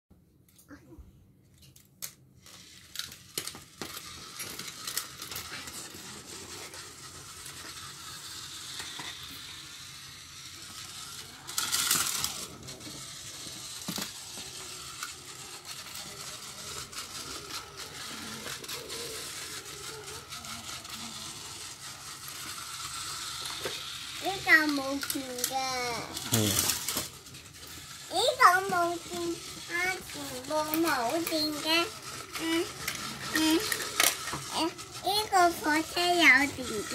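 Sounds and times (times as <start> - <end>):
toy train clatter: 1.5 - 36.9
toy train rattling whir: 1.5 - 36.9.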